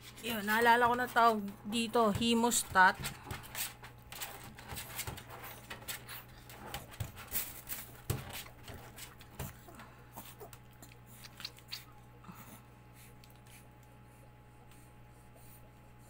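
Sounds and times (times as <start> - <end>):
air conditioner hum: 0.0 - 16.0
puppy sounds: 3.5 - 16.0.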